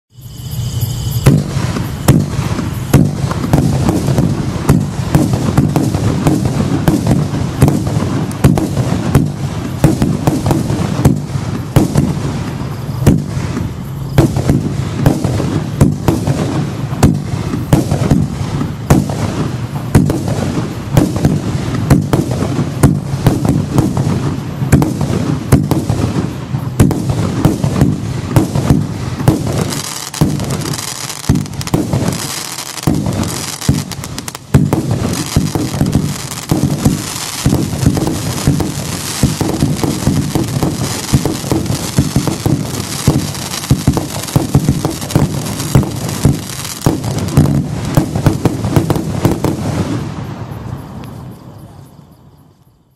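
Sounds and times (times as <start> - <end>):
fireworks barrage firing: 0.1 - 51.0
sharp loud firework reports: 0.1 - 51.0.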